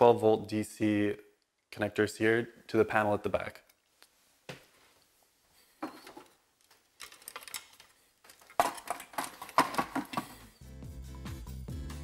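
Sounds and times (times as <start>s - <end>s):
plastic clicks and clatter: 6.0s - 10.4s.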